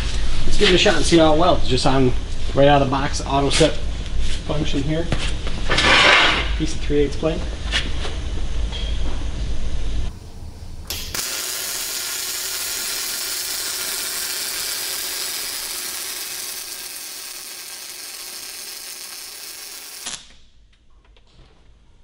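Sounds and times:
welding arc crackle: 10.8 - 20.4.

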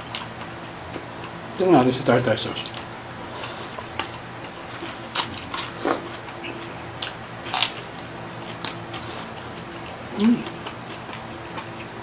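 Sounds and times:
close-up chewing: 2.6 - 12.0.

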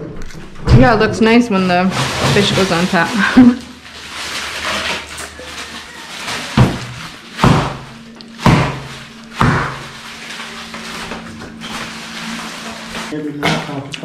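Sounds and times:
refrigerator hum: 0.0 - 14.0
freezer door thudding: 1.9 - 3.1, 4.4 - 13.8.

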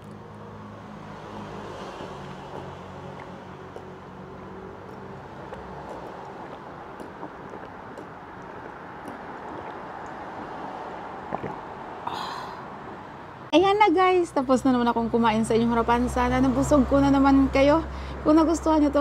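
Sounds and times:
short breath: 12.0 - 12.8, 17.9 - 18.2.

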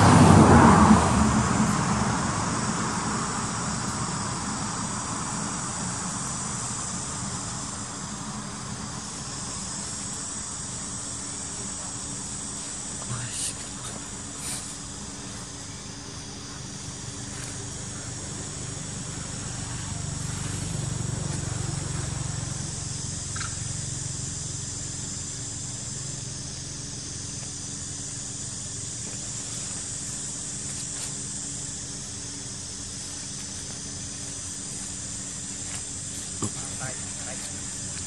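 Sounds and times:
high-pitched hiss: 0.0 - 38.0.

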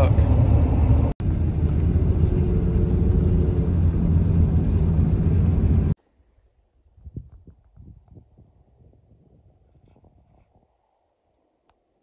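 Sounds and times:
loud low rumbling: 0.0 - 6.0.

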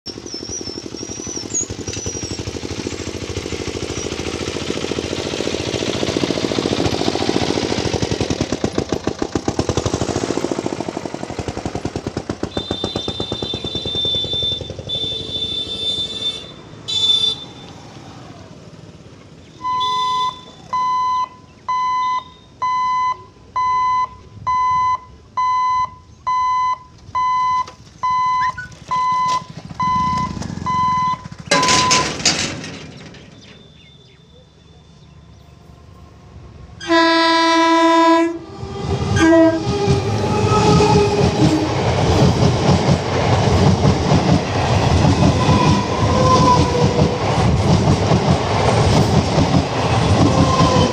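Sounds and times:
vehicle engines passing: 0.1 - 22.0, 27.0 - 50.9
level crossing hooter beeping: 12.4 - 17.8, 19.5 - 32.5, 45.1 - 47.1
high horn: 12.5 - 17.6, 19.7 - 20.5, 36.8 - 38.4, 39.2 - 41.1.

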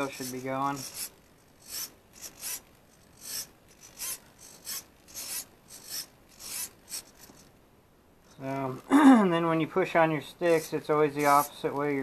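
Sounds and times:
servo buzzing: 0.0 - 7.6, 10.5 - 11.7.

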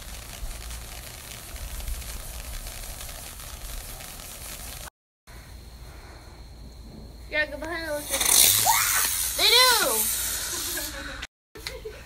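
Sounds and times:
firework fountain hissing and crackling: 0.0 - 4.9, 7.3 - 11.8.

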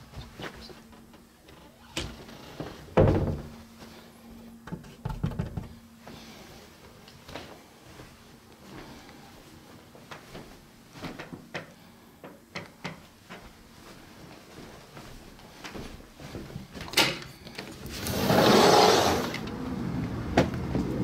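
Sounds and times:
outdoor background noise: 0.0 - 21.0
sliding door rolling open: 17.9 - 21.0.

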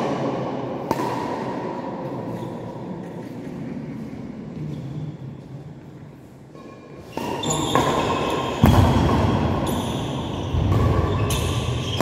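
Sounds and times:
racket hitting shuttlecock: 0.0 - 2.2, 7.0 - 12.0.

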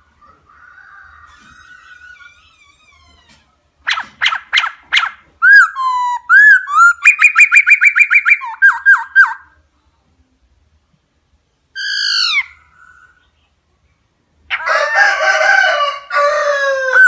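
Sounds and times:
bird singing whistled song: 3.9 - 9.5.

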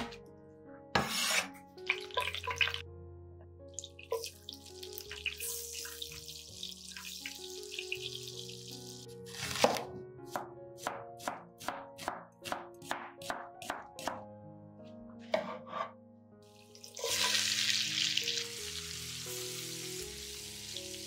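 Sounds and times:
knife cutting onion on wooden board: 1.0 - 1.6, 9.3 - 14.2
onion sizzling in pan: 4.0 - 9.7, 16.6 - 21.0.

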